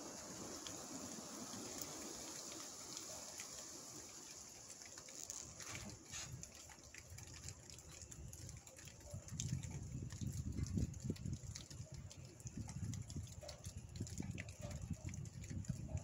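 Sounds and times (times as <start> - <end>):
drips and ticks: 0.0 - 16.0
rain hissing in trees: 0.0 - 16.0
wind buffeting microphone: 8.2 - 16.0.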